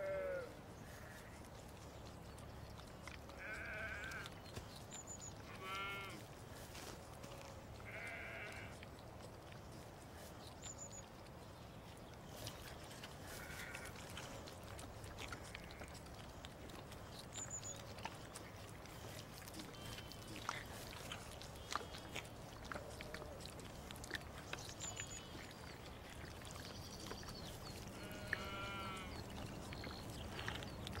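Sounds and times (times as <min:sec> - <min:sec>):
sheep bleating: 0:03.4 - 0:04.3, 0:05.5 - 0:06.2, 0:07.4 - 0:08.8, 0:13.4 - 0:13.9, 0:28.0 - 0:29.2.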